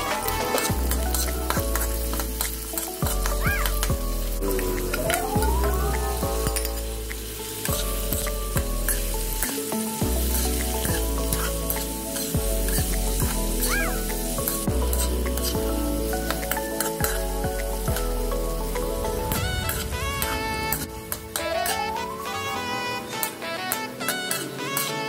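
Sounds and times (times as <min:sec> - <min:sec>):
metal spatula scraping pan: 0:00.0 - 0:03.8, 0:08.8 - 0:09.6, 0:13.6 - 0:15.6, 0:19.3 - 0:25.0
background music: 0:00.0 - 0:25.0
vegetables sizzling in oil: 0:00.0 - 0:25.0.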